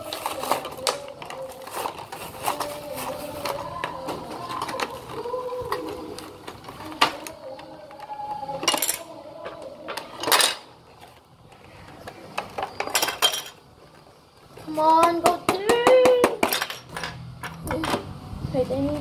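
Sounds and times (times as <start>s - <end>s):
plastic packaging crinkling: 0.0s - 8.5s.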